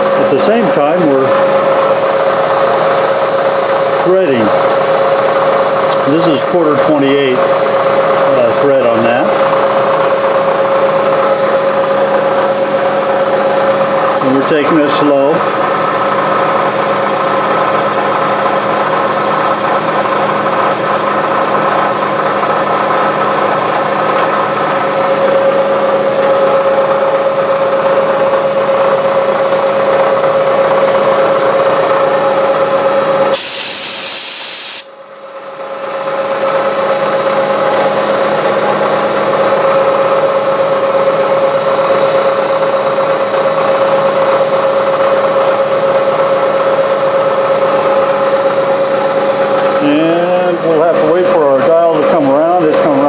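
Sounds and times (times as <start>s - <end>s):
metal lathe cutting thread: 0.0s - 34.9s
milling machine running: 0.0s - 53.0s
hiss: 33.4s - 34.9s.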